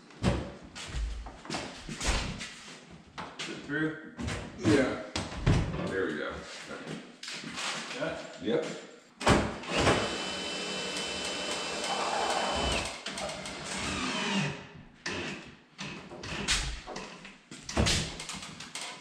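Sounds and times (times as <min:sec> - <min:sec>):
power drill whining: 0:09.7 - 0:14.6.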